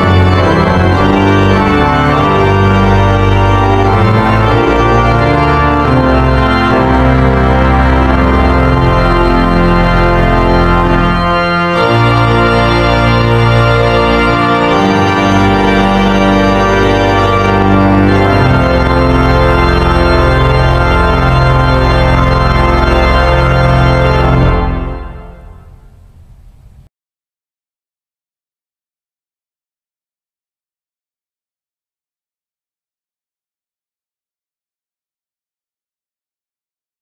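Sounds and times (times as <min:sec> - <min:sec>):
organ playing slow chords: 0:00.0 - 0:26.9.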